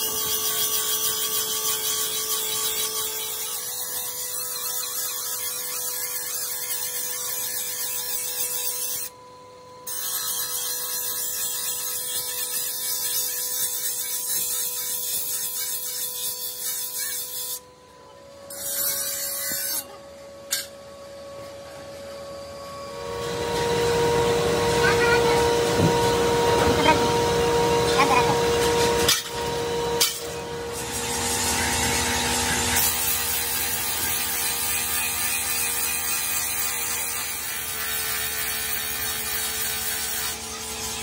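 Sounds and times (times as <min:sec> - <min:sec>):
grinding wheel on steel blade: 0:00.0 - 0:09.2, 0:09.8 - 0:17.6, 0:18.5 - 0:19.9, 0:27.9 - 0:41.0
machine hum: 0:16.3 - 0:32.8.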